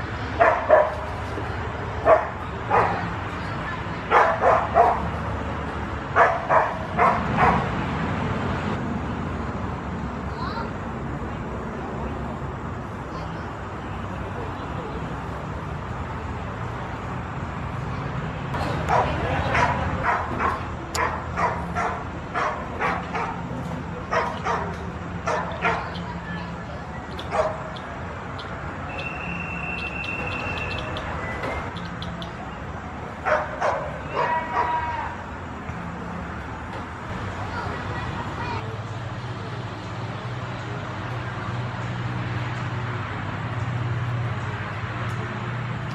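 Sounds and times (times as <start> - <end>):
dog barking: 0.4 - 1.0, 2.0 - 3.1, 4.1 - 5.1, 6.2 - 7.7, 18.9 - 23.4, 24.1 - 26.0, 27.3 - 27.7, 33.2 - 34.8.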